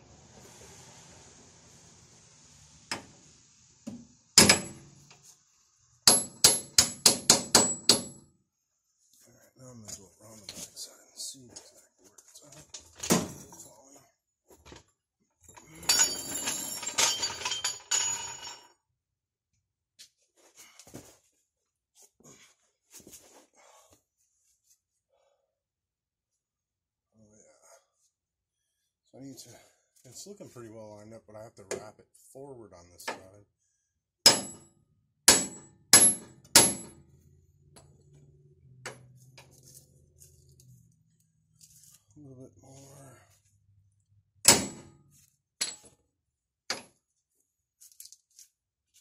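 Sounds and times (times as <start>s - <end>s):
sharp metallic clanks: 4.4s - 4.9s, 44.4s - 45.0s
clattering and scraping: 14.6s - 18.7s.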